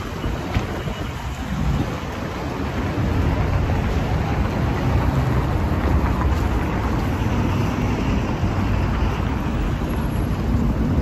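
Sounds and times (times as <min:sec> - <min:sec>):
car traffic rumble: 0:00.0 - 0:11.0.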